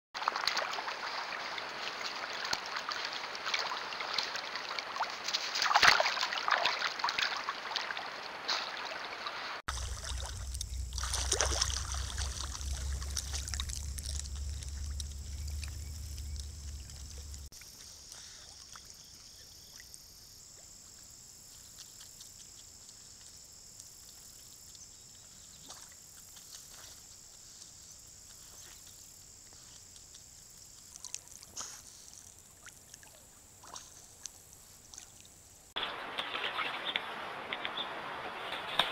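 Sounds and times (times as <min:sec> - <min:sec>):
otters splashing in water: 0:00.2 - 0:17.5
low rumble: 0:09.7 - 0:17.5.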